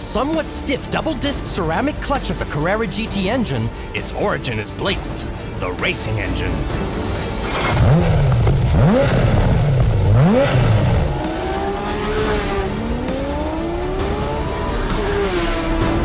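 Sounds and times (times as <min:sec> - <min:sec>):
sports car engine revving: 0:07.2 - 0:16.0.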